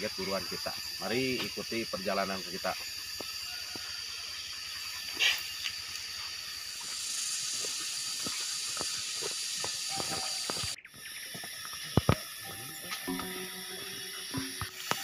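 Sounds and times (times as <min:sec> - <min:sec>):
forest background hiss: 0:00.0 - 0:15.0
footsteps on leafy dirt trail: 0:05.0 - 0:15.0
thin high whine: 0:12.0 - 0:15.0.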